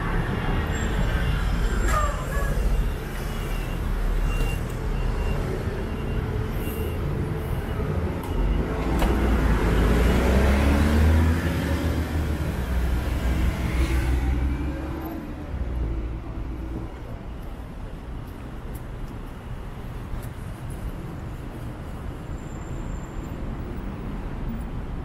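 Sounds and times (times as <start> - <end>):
traffic rumble: 0.0 - 25.0
vehicle accelerating past: 9.5 - 12.2.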